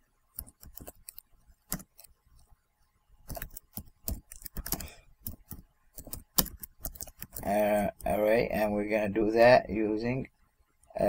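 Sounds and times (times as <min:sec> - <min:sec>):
keyboard typing clicks: 0:00.4 - 0:02.1, 0:03.3 - 0:08.2.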